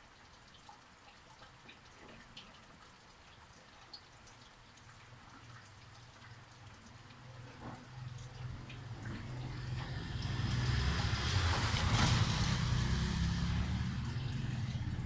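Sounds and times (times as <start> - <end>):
tyres hissing on wet road: 8.8 - 15.0
motorcycle engine hum: 8.9 - 15.0.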